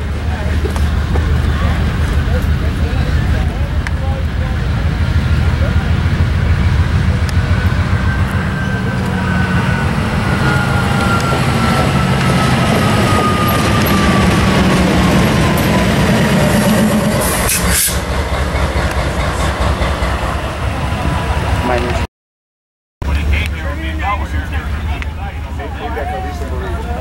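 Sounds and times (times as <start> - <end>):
diesel locomotive passing: 0.0 - 22.1, 23.0 - 27.0.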